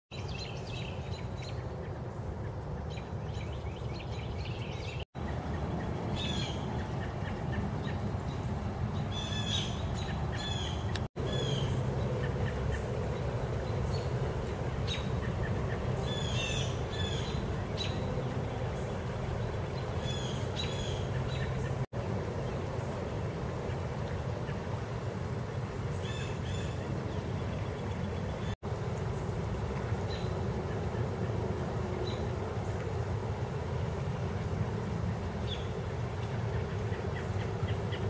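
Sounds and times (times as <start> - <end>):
birds chirping: 0.1 - 24.7, 33.8 - 38.0.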